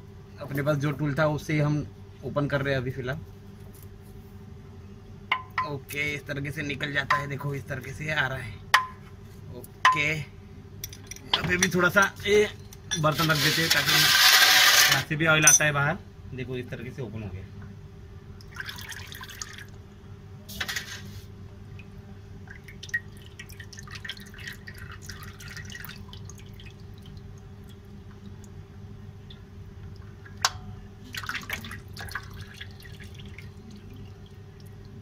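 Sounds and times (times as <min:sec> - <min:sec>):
steady low hum: 0:00.0 - 0:13.8, 0:14.9 - 0:35.0
oil dripping into metal basin: 0:18.4 - 0:19.8, 0:21.8 - 0:35.0.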